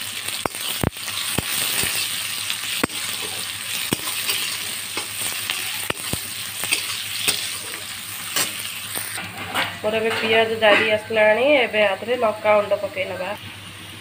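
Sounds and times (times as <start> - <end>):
onions sizzling in hot oil: 0.0 - 14.0
spatula scraping a pan: 2.9 - 11.2.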